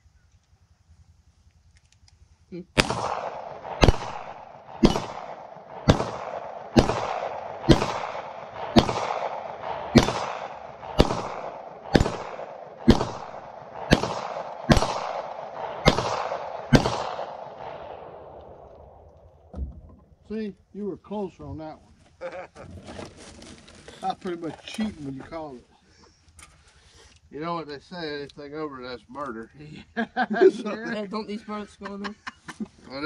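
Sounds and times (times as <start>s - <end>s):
pistol shots echoing: 2.8s - 19.2s.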